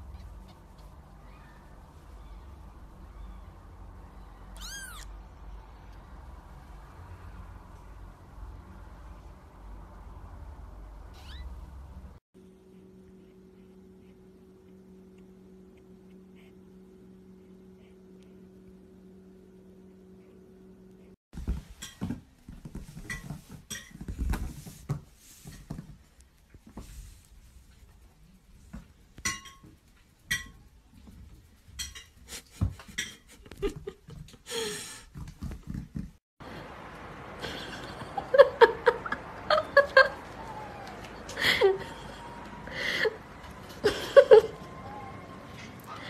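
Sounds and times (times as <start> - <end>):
faint steady hum: 0.0 - 21.2
low steady rumble: 0.0 - 21.2
kitten mewing: 4.5 - 5.1, 11.2 - 11.5.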